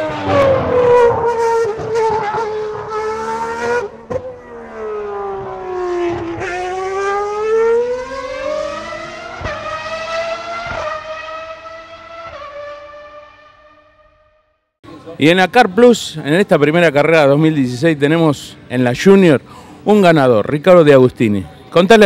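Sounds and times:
racing car engine at high revs: 0:00.0 - 0:14.2.

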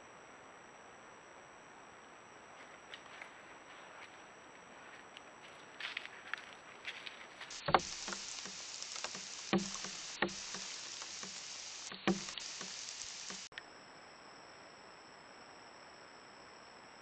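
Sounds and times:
steady microphone hiss: 0:00.0 - 0:17.0
sharp knocks: 0:07.5 - 0:13.5
soft ticks and thuds: 0:07.5 - 0:13.5.

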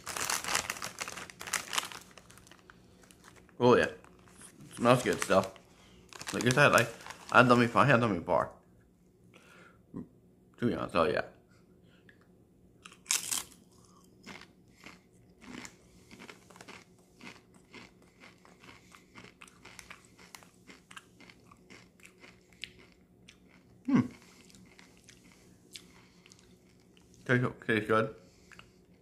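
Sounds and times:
person chewing crunchily: 0:00.0 - 0:07.4, 0:12.8 - 0:27.2
chip crunching: 0:00.0 - 0:07.9, 0:12.8 - 0:27.2.

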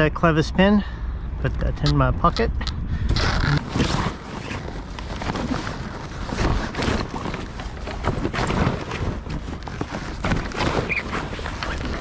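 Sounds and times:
sail cloth rustling: 0:03.2 - 0:12.0
knocks and clatter: 0:03.6 - 0:12.0.

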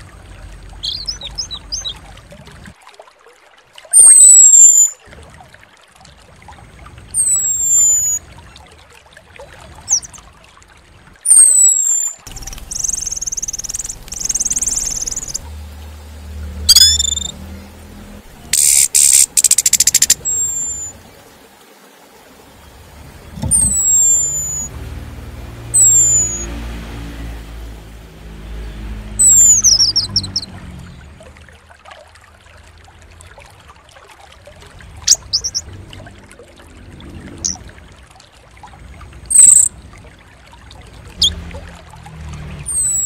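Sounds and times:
buzzy bird chatter: 0:00.8 - 0:02.0, 0:11.4 - 0:15.4, 0:16.7 - 0:17.3, 0:18.4 - 0:20.9, 0:35.1 - 0:35.6, 0:39.3 - 0:39.7
songbird whistles: 0:00.8 - 0:02.0, 0:03.9 - 0:05.0, 0:07.2 - 0:08.2, 0:09.9 - 0:10.1, 0:11.3 - 0:15.4, 0:16.7 - 0:17.4, 0:18.5 - 0:21.0, 0:23.4 - 0:24.7, 0:25.7 - 0:26.5, 0:29.2 - 0:30.5, 0:35.1 - 0:35.6, 0:39.3 - 0:39.7, 0:42.7 - 0:43.0
rattling bird trill: 0:11.3 - 0:15.4, 0:16.7 - 0:17.3, 0:18.5 - 0:20.9, 0:23.5 - 0:24.7, 0:25.7 - 0:26.5, 0:35.1 - 0:35.6, 0:39.3 - 0:39.7.

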